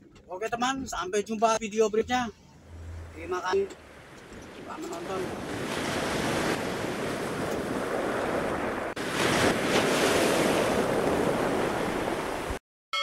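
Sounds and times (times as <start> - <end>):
wind: 0.0 - 13.0
surf: 3.1 - 12.6.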